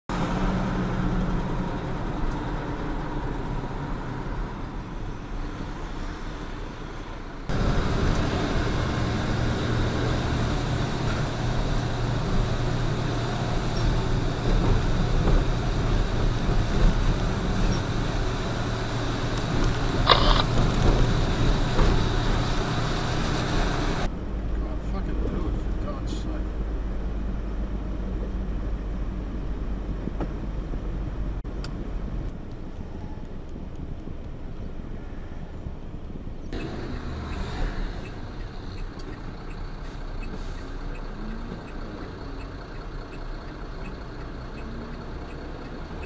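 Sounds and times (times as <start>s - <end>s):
road noise: 0.1s - 46.0s
truck engine running: 7.5s - 24.1s, 36.6s - 46.0s.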